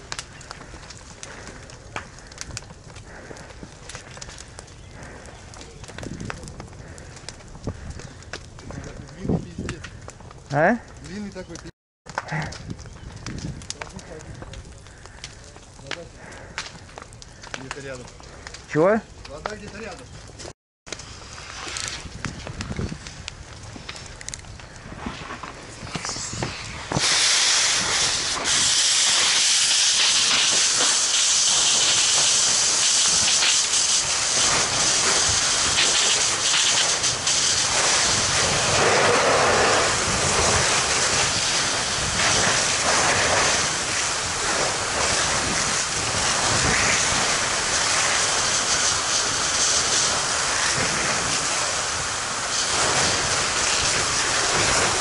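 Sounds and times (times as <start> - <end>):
steam hissing off fire: 24.9 - 55.0
fire hose water jet spraying: 25.0 - 55.0.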